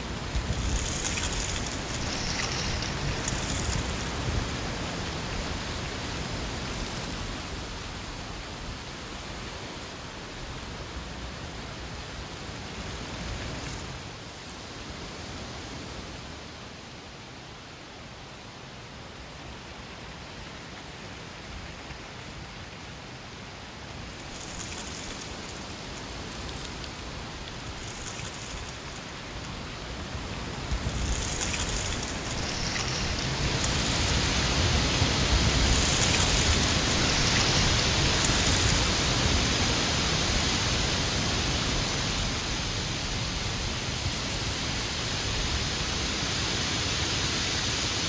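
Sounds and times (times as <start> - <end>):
dry leaves rustling: 0.0 - 7.7, 24.0 - 46.0
strong wind through trees: 0.0 - 48.0.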